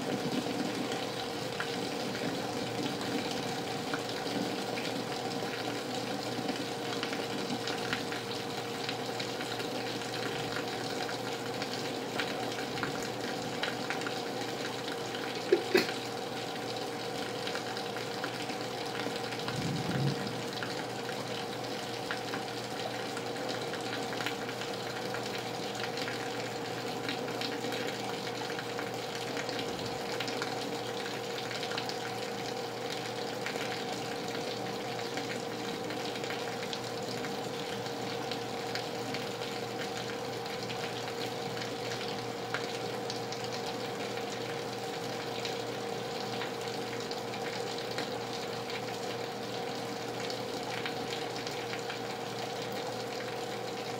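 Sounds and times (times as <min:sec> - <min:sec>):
heavy rain: 0:17.7 - 0:27.7.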